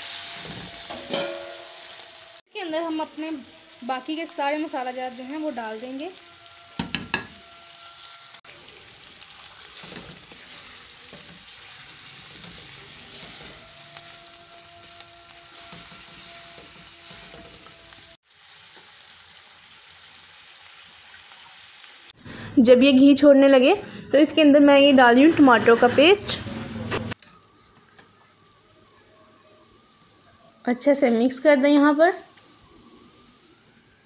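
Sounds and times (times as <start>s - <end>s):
chicken sizzling in hot fat: 0.0s - 22.2s, 27.1s - 34.0s
utensil knocking against pan: 6.8s - 7.4s.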